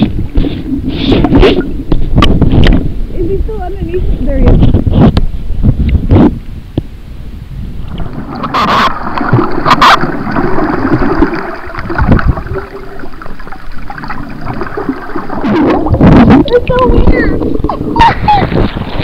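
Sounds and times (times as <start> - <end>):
muffled underwater sloshing: 7.7 - 19.0
sharp splashes: 7.9 - 16.5.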